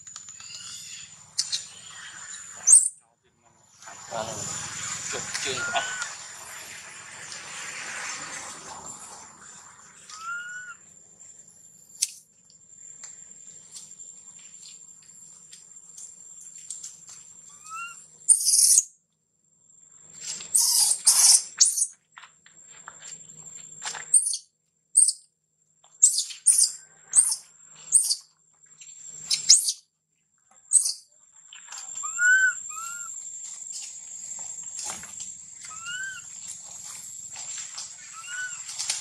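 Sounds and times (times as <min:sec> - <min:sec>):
baby monkey squealing: 0:00.5 - 0:02.9, 0:05.4 - 0:06.1, 0:10.1 - 0:10.8, 0:17.5 - 0:18.8, 0:20.5 - 0:21.9, 0:26.0 - 0:28.2, 0:29.3 - 0:29.8, 0:32.0 - 0:33.2, 0:35.7 - 0:36.3, 0:38.0 - 0:38.6
monkey rising and falling calls: 0:04.5 - 0:06.6, 0:10.0 - 0:10.8, 0:17.5 - 0:18.6, 0:32.0 - 0:33.2, 0:35.7 - 0:36.4, 0:37.9 - 0:39.0.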